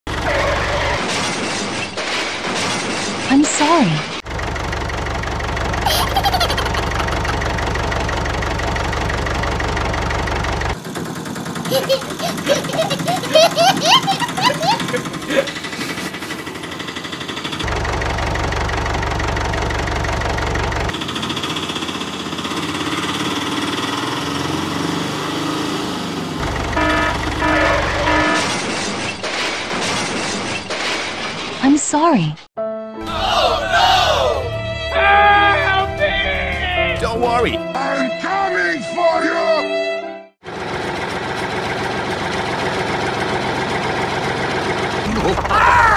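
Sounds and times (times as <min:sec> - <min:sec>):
noisy crash clatter: 0:00.1 - 0:04.3, 0:27.3 - 0:31.7
tractor engine idling: 0:04.2 - 0:24.2, 0:26.4 - 0:28.4, 0:40.4 - 0:45.9
short horn honks: 0:26.8 - 0:28.5.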